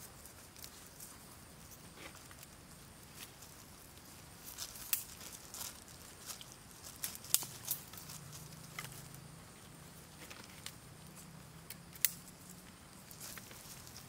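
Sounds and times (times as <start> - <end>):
twigs snapping and crackling: 4.6 - 9.2, 11.6 - 14.0.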